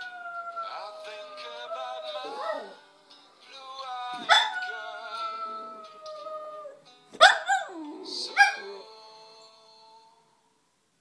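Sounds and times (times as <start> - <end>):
dog howling: 0.0 - 2.8, 4.3 - 6.8.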